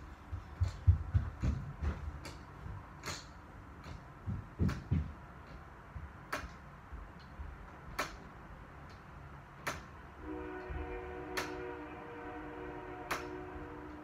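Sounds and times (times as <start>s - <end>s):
soft knocks: 3.8s - 6.1s.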